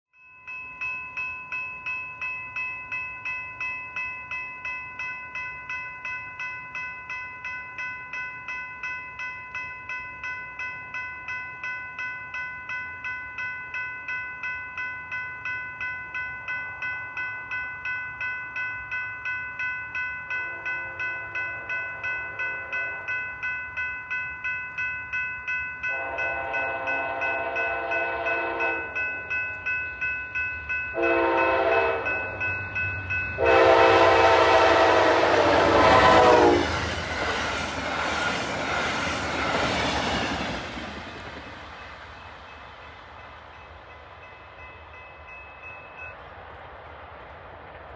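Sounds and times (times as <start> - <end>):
railroad crossing bell dinging: 0.1 - 46.4
train horn blasts: 20.4 - 23.1, 25.9 - 29.0, 31.0 - 32.3, 33.4 - 36.8
train rushing past: 25.9 - 47.9.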